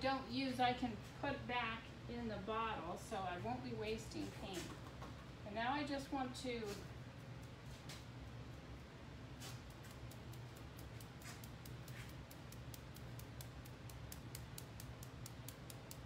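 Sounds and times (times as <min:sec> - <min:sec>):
brush tapping quick ticks: 0:09.4 - 0:16.0.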